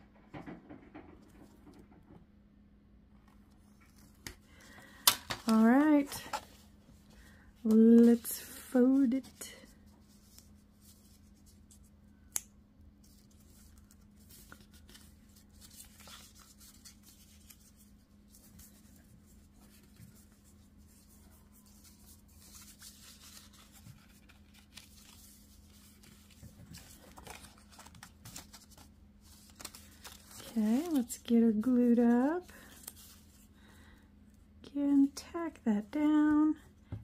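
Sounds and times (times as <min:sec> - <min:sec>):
paper envelope rustling: 0:03.6 - 0:11.9, 0:13.0 - 0:31.8, 0:32.4 - 0:33.5.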